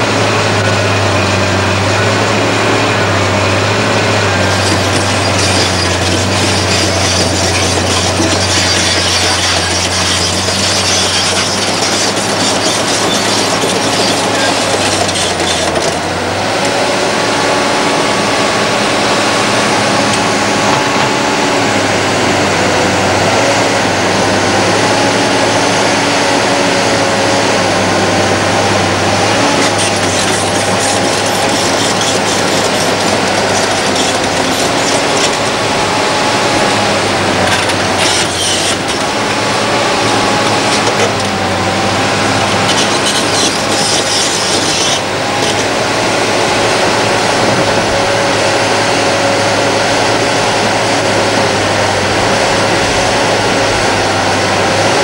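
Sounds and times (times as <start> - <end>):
diesel engine running: 0.0 - 55.0
hydraulic whine: 0.0 - 55.0.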